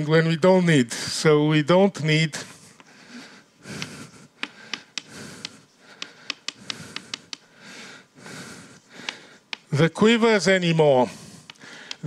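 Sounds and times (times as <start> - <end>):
chalk tapping on board: 3.8 - 7.4, 9.0 - 9.7.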